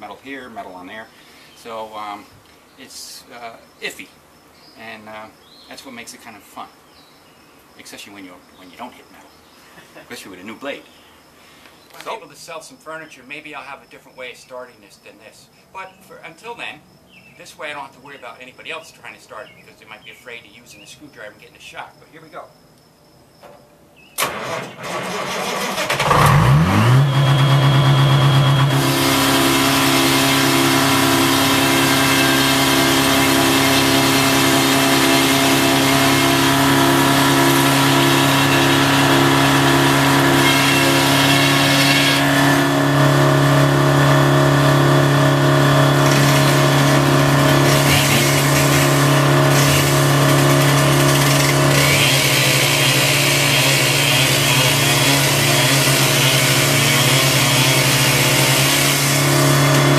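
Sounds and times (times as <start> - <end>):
engine cranking and running: 24.2 - 59.9.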